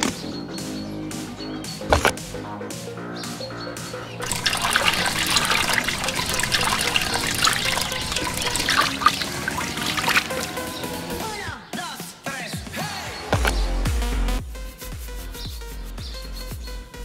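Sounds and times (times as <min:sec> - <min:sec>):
water pouring into plastic tub: 0:04.2 - 0:10.8
water splashing and sloshing: 0:04.2 - 0:11.2.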